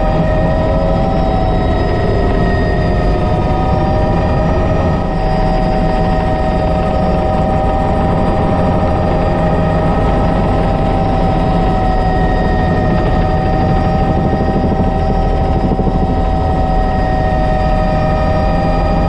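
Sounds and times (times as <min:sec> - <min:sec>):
helicopter rotor noise: 0:00.0 - 0:19.0
turbine engine whine: 0:00.0 - 0:19.0.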